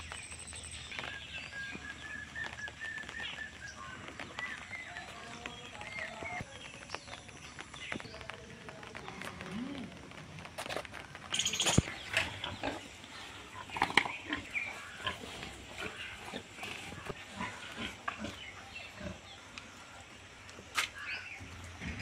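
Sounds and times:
pigs grunting: 0:11.9 - 0:19.5.

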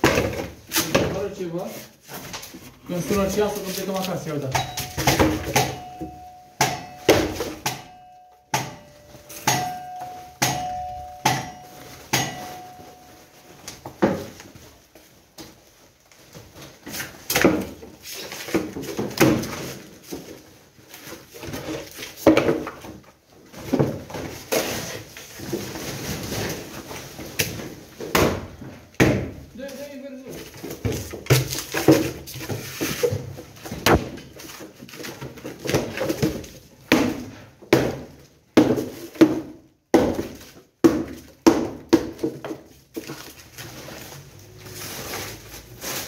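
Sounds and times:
rubble sacks rustling and scraping: 0:00.0 - 0:05.0, 0:09.1 - 0:28.0, 0:28.8 - 0:36.8, 0:42.6 - 0:46.0
sharp knocks of debris: 0:33.7 - 0:34.4.

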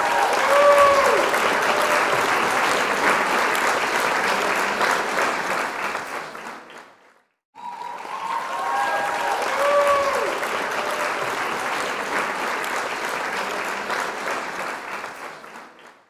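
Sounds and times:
applause: 0:00.0 - 0:16.0.

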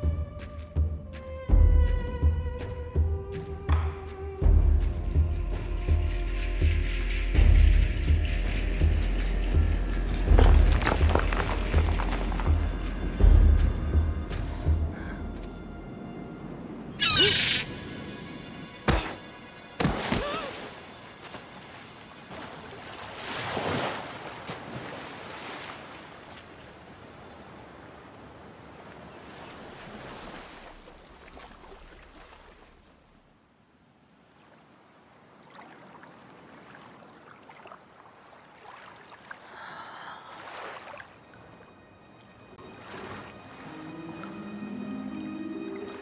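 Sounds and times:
film soundtrack music: 0:00.0 - 0:22.7, 0:39.7 - 0:46.0.

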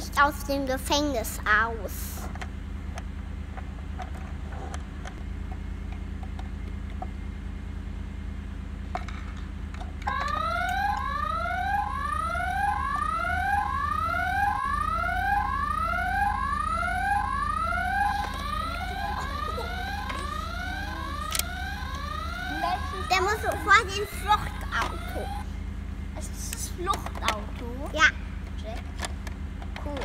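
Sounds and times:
toy electronic alarm whooping: 0:10.1 - 0:25.5.

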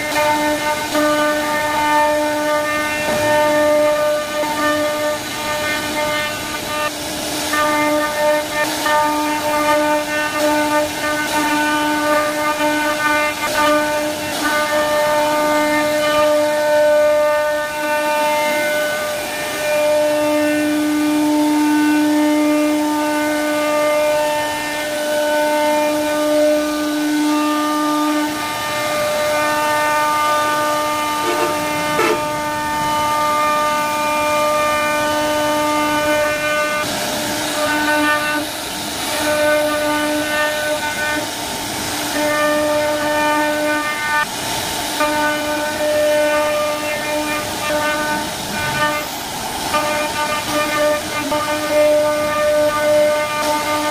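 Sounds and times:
bit cutting wood hiss: 0:27.9 - 0:53.9.

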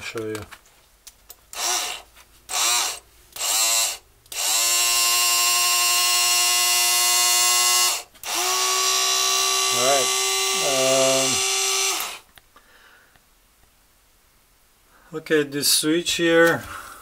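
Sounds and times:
electric gearmotor whining: 0:01.5 - 0:12.2.

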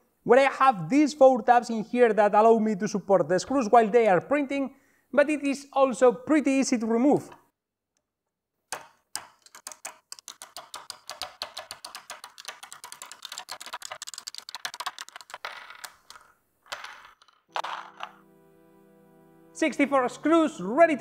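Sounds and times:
plastic clicks and clatters: 0:08.8 - 0:18.1.

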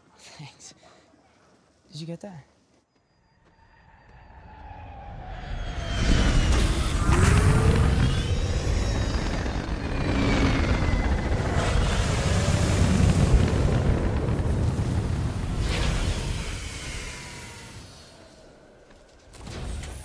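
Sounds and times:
rising engine whine: 0:03.4 - 0:18.8
jet engines rumbling: 0:04.5 - 0:19.1.

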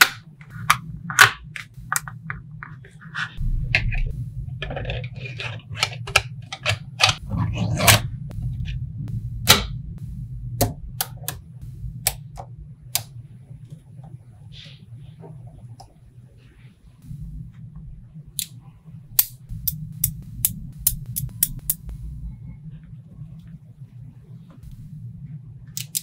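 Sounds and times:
magnetic balls clicking together: 0:19.2 - 0:22.0.

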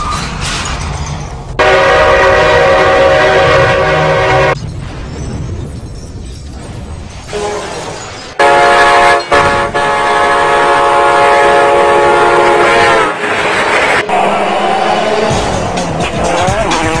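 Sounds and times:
train horn blast: 0:01.6 - 0:04.6, 0:08.4 - 0:15.2
rushing noise: 0:02.4 - 0:17.0.

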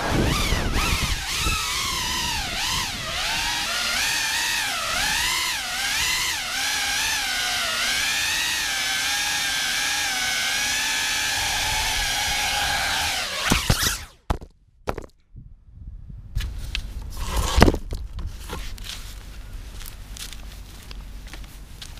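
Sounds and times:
drone motors whining: 0:00.0 - 0:14.4.

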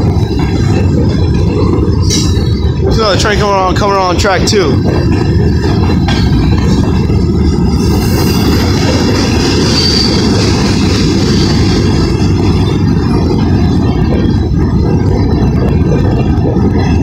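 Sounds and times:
train wheels rumbling on rails: 0:00.0 - 0:17.0
high squeal: 0:07.6 - 0:12.8.

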